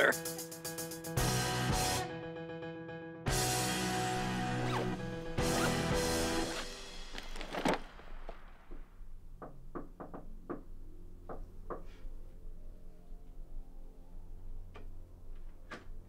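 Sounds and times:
music: 0.0 - 8.0, 9.4 - 16.0
knocking on a door: 9.4 - 11.9.

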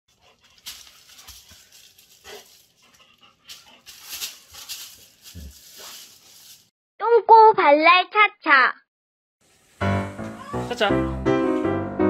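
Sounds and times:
dog breathing: 0.1 - 4.6
dog rustling and scuffling: 0.2 - 6.7.

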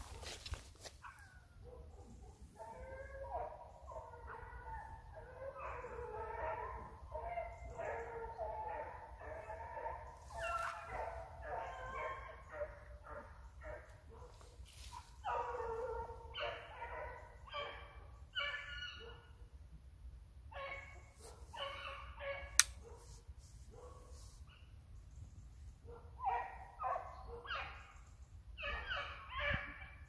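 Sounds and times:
hounds yelping: 0.0 - 19.4, 20.5 - 23.1, 25.8 - 30.0
sharp click: 22.6 - 22.8.

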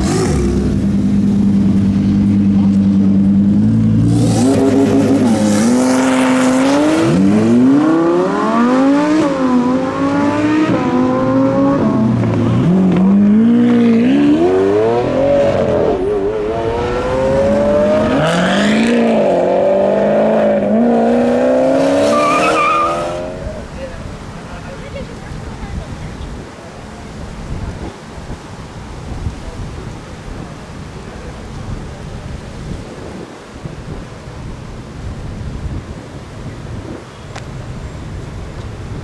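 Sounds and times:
sports car engines accelerating: 0.0 - 23.6.

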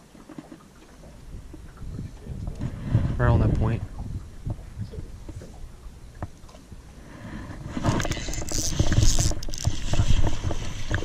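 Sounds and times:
fish thrashing water: 7.6 - 11.0.

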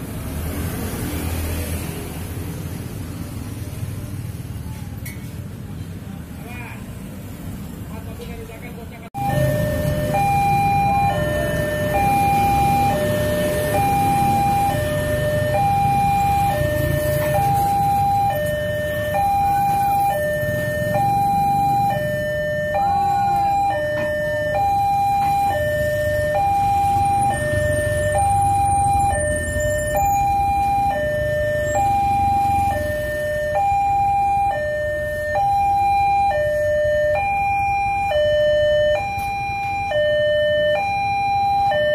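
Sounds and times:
motorcycle engines passing: 0.0 - 41.9
two-tone level-crossing alarm: 9.2 - 41.9.

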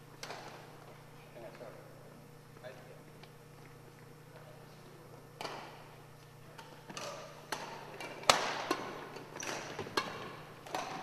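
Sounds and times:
racket hitting shuttlecock: 6.6 - 11.0.

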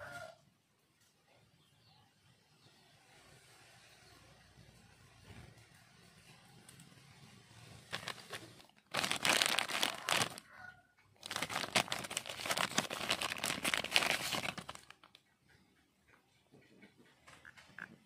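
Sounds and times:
plastic bag crinkling: 7.9 - 10.5, 11.2 - 15.2.

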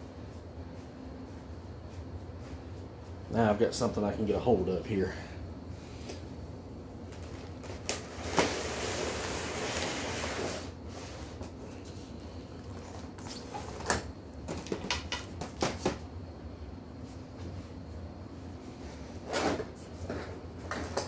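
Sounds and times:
packaging scraping and rustling: 7.1 - 11.1.

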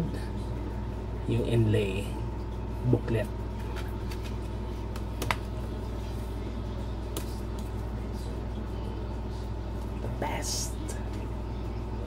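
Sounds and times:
steady low hum: 0.0 - 12.0
sharp clicks of cd package: 3.9 - 5.5.

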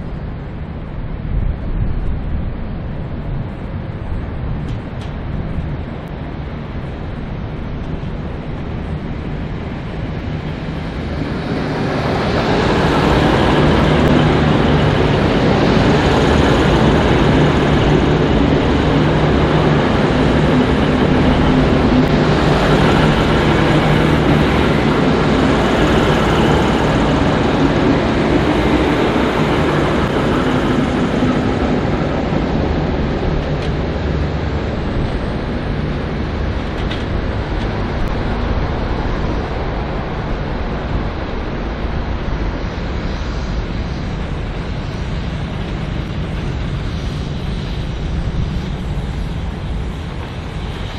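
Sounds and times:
wheels rumbling on rail: 0.0 - 50.9
diesel engines humming: 3.8 - 42.8.

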